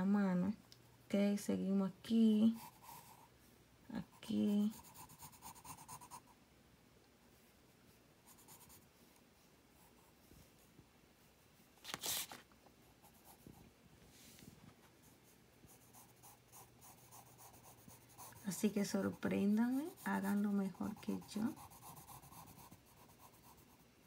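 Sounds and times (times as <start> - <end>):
pencil scratching on paper: 2.4 - 3.3, 4.2 - 6.3, 8.3 - 8.8, 15.0 - 23.8.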